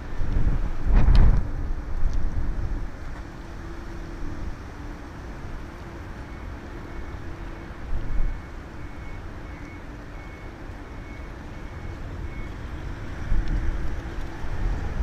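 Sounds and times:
wind gusts on microphone: 0.0s - 6.2s, 11.0s - 15.0s
faint high beep: 6.3s - 12.6s.

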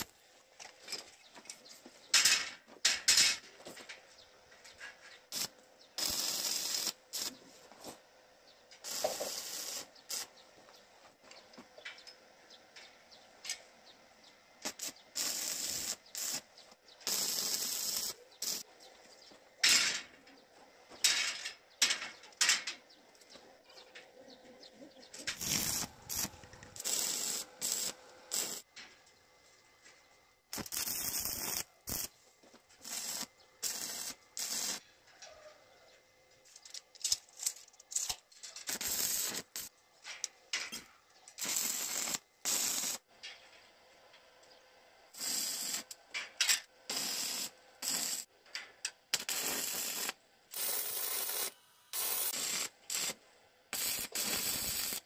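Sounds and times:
arc welding crackling hiss: 5.3s - 8.0s, 8.8s - 10.4s, 14.6s - 18.7s, 25.3s - 28.7s, 30.5s - 32.2s, 32.8s - 34.8s, 37.9s - 39.7s, 40.8s - 43.1s, 45.1s - 48.3s, 49.1s - 55.0s.

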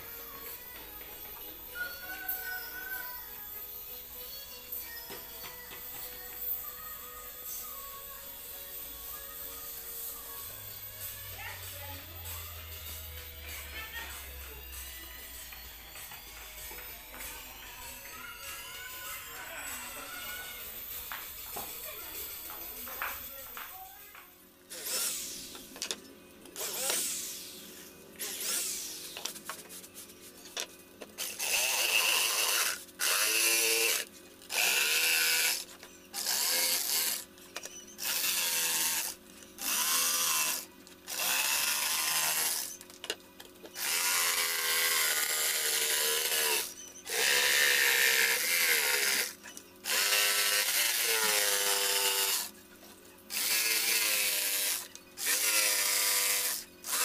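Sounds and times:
electric jigsaw cutting plywood: 24.7s - 25.6s, 31.2s - 37.3s, 38.0s - 42.8s, 43.7s - 52.6s, 53.3s - 57.0s.

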